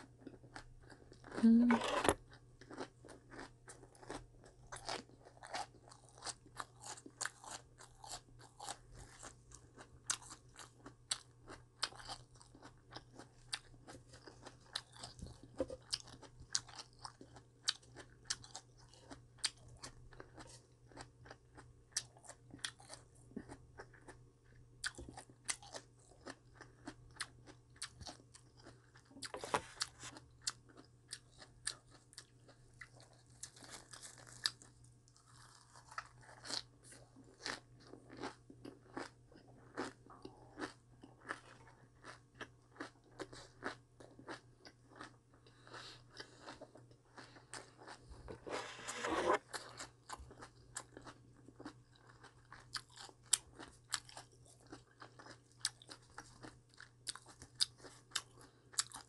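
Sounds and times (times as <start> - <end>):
chewing crunchy vegetables: 0.0 - 59.0.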